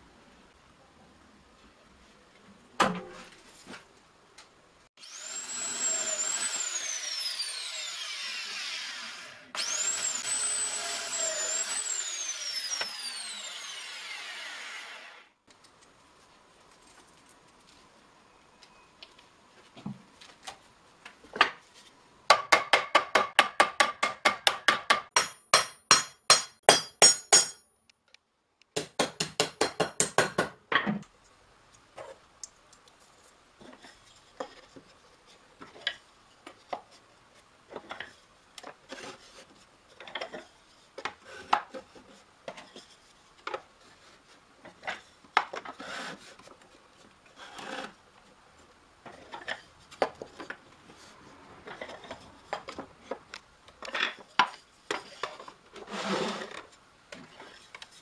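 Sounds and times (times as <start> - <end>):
hammer striking thin steel band: 23.3 - 27.7.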